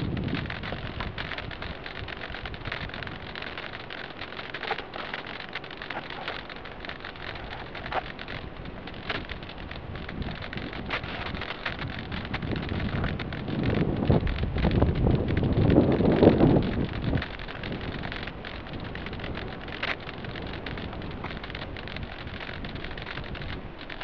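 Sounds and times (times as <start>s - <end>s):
crackling hiss: 0.0s - 24.0s.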